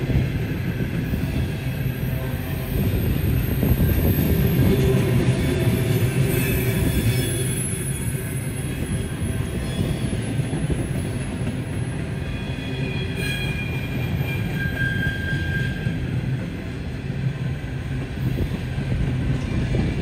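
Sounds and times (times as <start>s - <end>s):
freight train rumbling past: 0.0s - 20.0s
wheel squeal: 3.2s - 16.1s.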